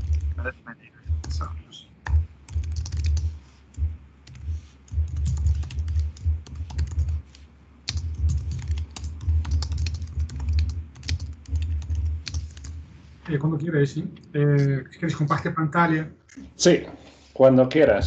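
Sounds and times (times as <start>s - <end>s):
typing on keyboard: 0.0s - 0.4s, 1.2s - 7.3s, 7.9s - 12.8s.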